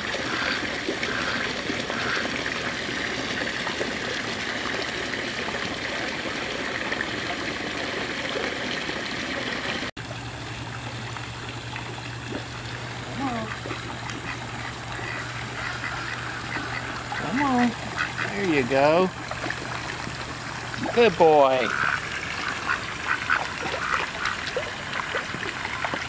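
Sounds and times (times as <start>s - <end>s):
water running into a pool: 0.0s - 26.0s
steady low hum: 10.0s - 26.0s.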